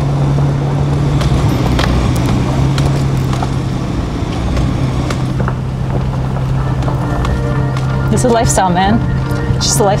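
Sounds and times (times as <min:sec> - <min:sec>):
car engine hum: 0:00.0 - 0:10.0
gravel clicks and knocks: 0:01.2 - 0:03.6
tyre noise on gravel: 0:01.2 - 0:08.7.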